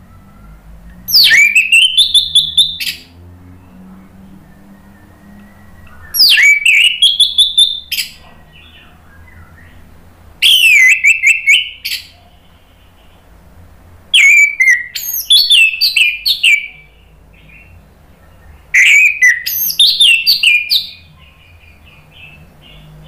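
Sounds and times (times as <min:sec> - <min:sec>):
thrush singing: 0:00.0 - 0:13.3.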